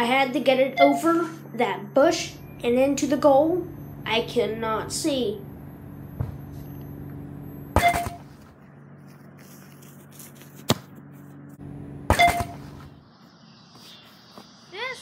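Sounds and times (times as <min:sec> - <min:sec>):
low steady hum: 0:00.0 - 0:13.4
soccer ball kicks and thuds: 0:06.2 - 0:06.5.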